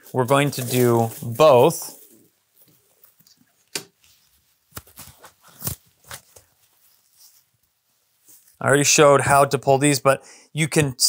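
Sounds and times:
feathers rustling: 0.0 - 2.2.

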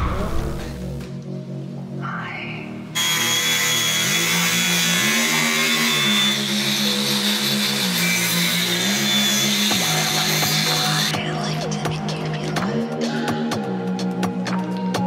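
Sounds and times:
background music with bass line: 0.0 - 3.0, 6.1 - 15.0.

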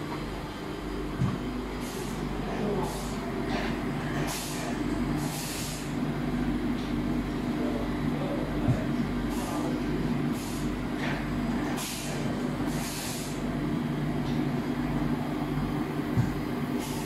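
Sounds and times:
machinery humming: 0.0 - 17.0.

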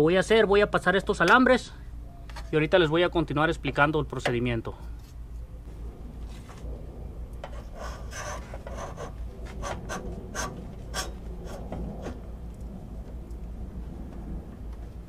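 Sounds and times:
wires scraping against metal: 6.2 - 12.3.

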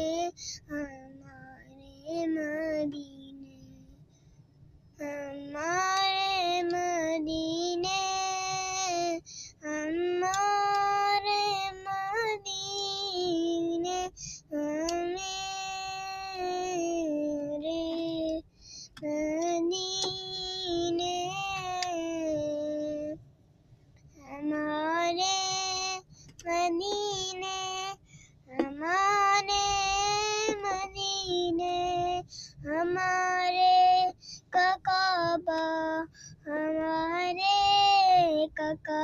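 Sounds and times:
boy singing unaccompanied: 0.0 - 4.0, 5.0 - 18.4, 19.0 - 23.2, 24.2 - 39.0.

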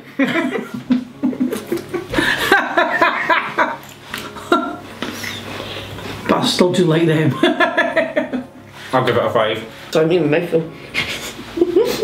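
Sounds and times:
people laughing and chuckling: 0.0 - 5.5, 7.3 - 8.6, 10.9 - 12.0.

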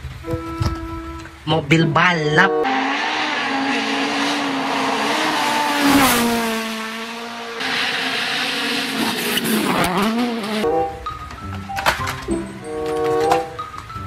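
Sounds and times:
rally car engine revving: 1.7 - 11.0
rally car engine passing: 2.1 - 11.2.

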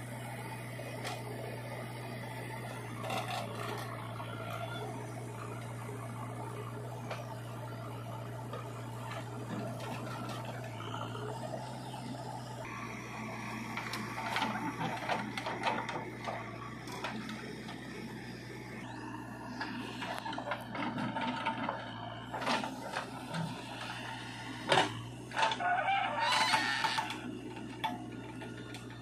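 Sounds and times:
diesel engine running: 0.0 - 29.0
soil dumped with clattering knocks: 13.7 - 17.8.

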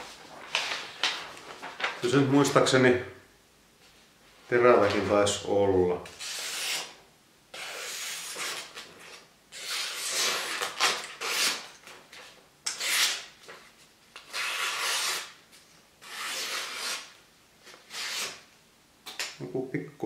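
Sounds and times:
knife blade slicing paper: 7.6 - 11.7, 12.7 - 13.3, 16.0 - 17.1, 17.8 - 18.4.

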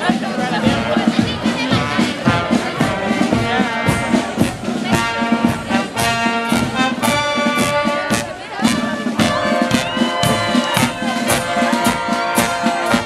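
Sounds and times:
drum beat: 0.0 - 13.0
marching brass band playing: 0.0 - 13.0.

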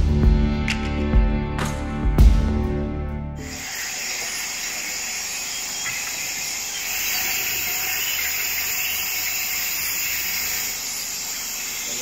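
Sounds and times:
insects and frogs chorus: 4.5 - 12.0.

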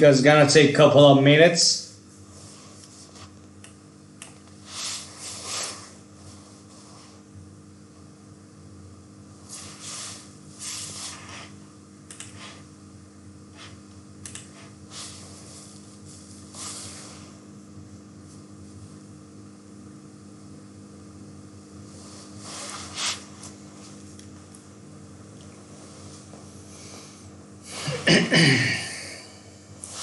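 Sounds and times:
low steady hum: 0.0 - 30.0
person breathing: 26.6 - 28.0.

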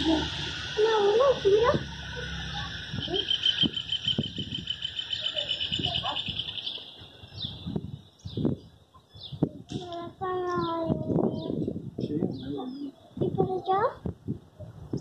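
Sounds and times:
high-pitched buzz: 0.0 - 6.4
fast pulsing trill: 0.0 - 6.6
vehicle passing: 0.0 - 7.6
bird chirps: 0.0 - 9.4.

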